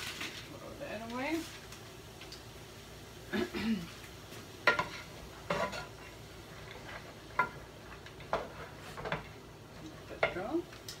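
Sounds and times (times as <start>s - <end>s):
faint sizzle: 0.0s - 11.0s
utensil scraping a pan: 4.6s - 9.4s.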